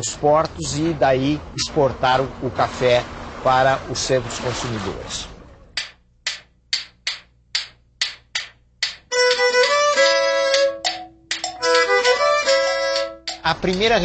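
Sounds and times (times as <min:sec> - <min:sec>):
percussive taps: 0:05.8 - 0:14.0.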